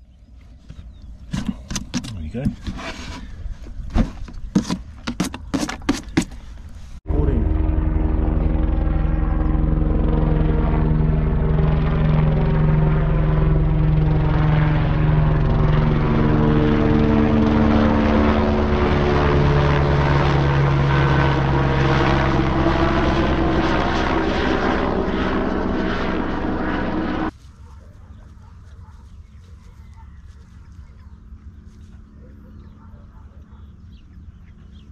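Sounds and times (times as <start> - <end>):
propeller aircraft flying overhead: 7.1 - 34.9.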